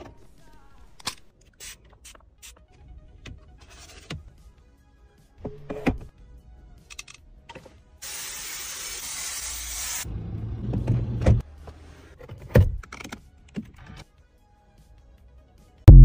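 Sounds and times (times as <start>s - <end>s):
aerosol spray hiss: 8.0s - 10.0s.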